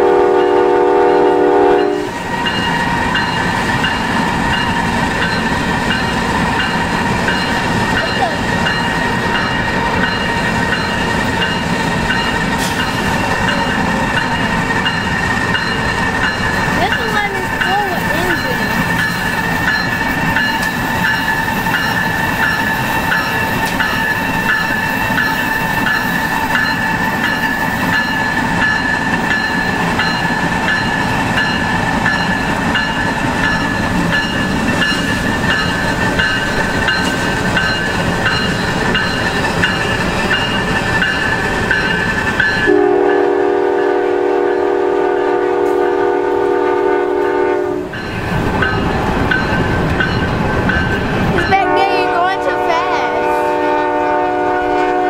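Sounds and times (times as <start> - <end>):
locomotive air horn blast: 0.0 - 2.1, 42.7 - 47.9, 51.6 - 55.0
diesel locomotive running: 0.0 - 55.0.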